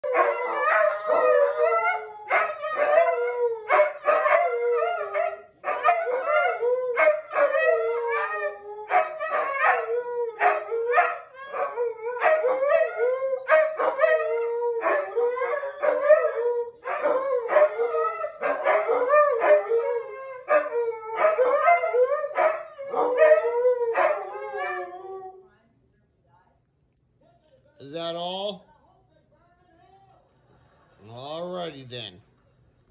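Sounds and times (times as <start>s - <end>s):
huskies howling: 0.0s - 25.4s.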